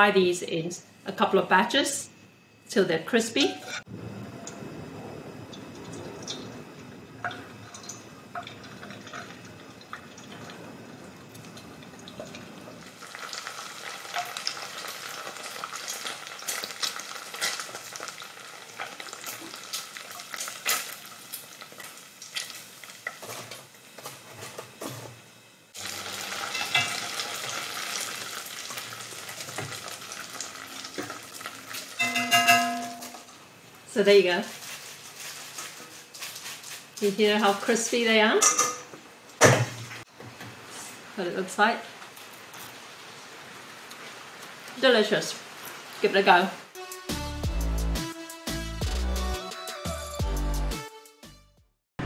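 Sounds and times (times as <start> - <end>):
deep-frying sizzle with crackles: 3.2 - 46.8
wire skimmer stirring in pot: 34.4 - 38.0.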